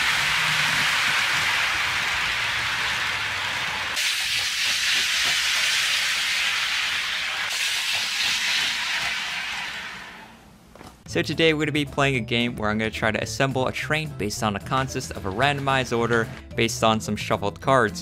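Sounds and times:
model trains whirring on track: 0.0s - 10.4s.

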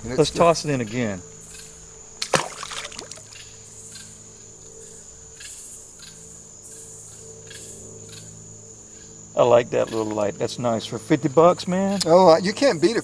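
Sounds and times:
insect chirps: 0.0s - 13.0s
insect drone: 0.0s - 13.0s.

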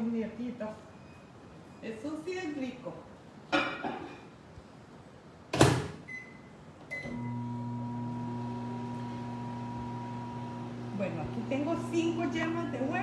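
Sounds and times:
microwave oven humming: 7.0s - 13.0s.

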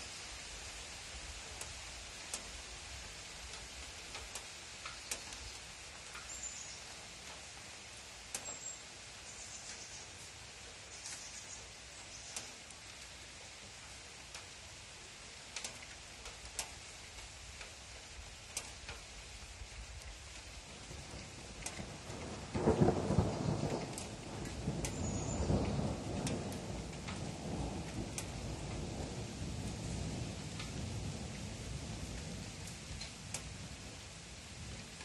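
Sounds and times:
steady rain: 0.0s - 35.0s
thunder rumbling: 20.7s - 35.0s.

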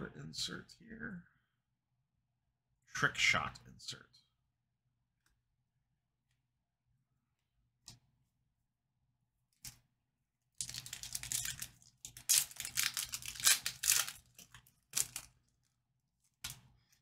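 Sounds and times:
wrapper tearing and crinkling: 10.6s - 16.6s.

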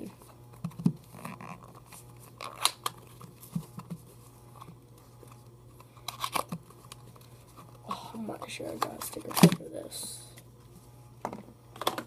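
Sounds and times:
plastic clicks and crinkles: 8.4s - 9.6s.

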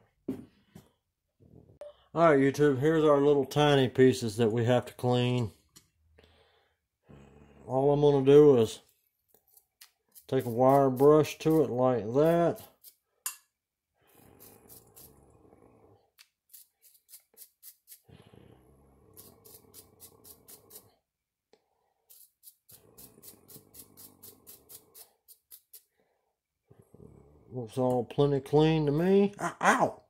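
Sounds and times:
wire brush scratching metal: 9.5s - 13.0s, 14.2s - 15.1s, 16.4s - 18.1s, 19.2s - 20.9s, 22.1s - 25.9s.

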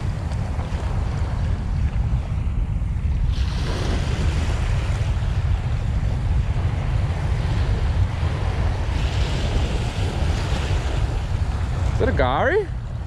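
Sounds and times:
wind buffeting microphone: 0.0s - 13.0s
small waves washing on sand: 3.2s - 13.0s.

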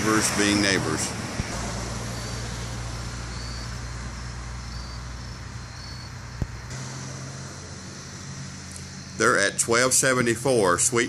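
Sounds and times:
low mechanical hum: 1.1s - 11.0s
faint insect chirps: 2.0s - 9.6s.

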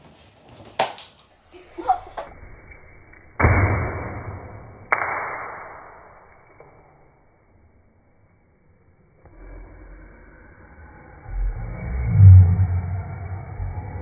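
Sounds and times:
deep slowed booms: 9.3s - 14.0s.

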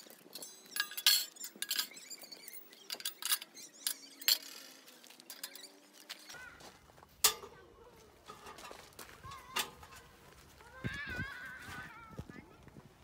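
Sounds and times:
metal pipes clinking: 0.0s - 5.8s, 7.2s - 7.6s, 8.2s - 10.0s.

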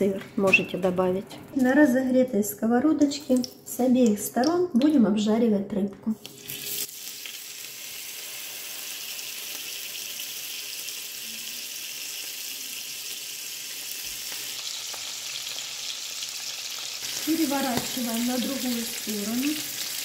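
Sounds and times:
fish sizzling in a frying pan: 6.3s - 20.0s.

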